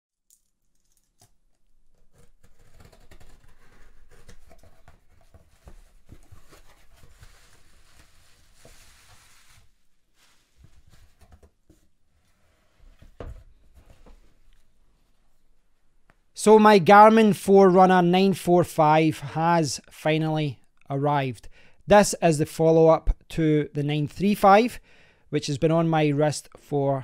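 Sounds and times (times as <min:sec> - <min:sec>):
scissors cutting packing tape: 0:01.0 - 0:04.9
cardboard flaps rustling: 0:02.0 - 0:14.5.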